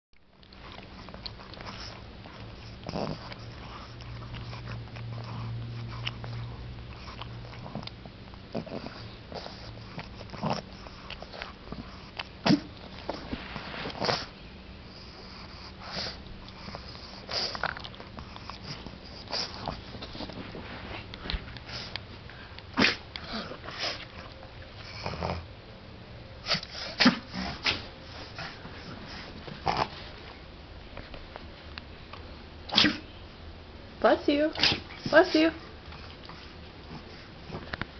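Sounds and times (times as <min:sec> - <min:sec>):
dog snuffling and sniffing: 0:00.5 - 0:25.4
dog snorting: 0:00.6 - 0:14.3, 0:22.8 - 0:25.5, 0:26.4 - 0:30.0.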